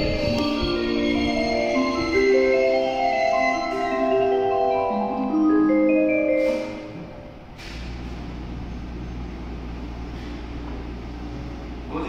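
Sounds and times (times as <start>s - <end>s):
chime melody over speakers: 0.0s - 7.4s.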